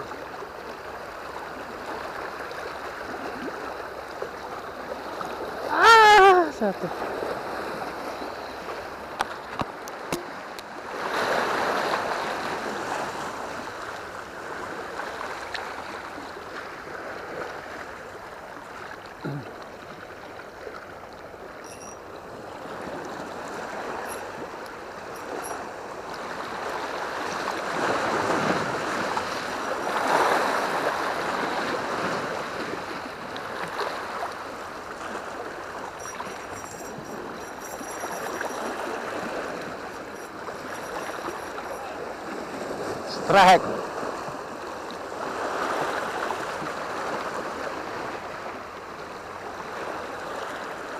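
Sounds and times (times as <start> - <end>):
sea waves washing against rocks: 22.2 - 48.8.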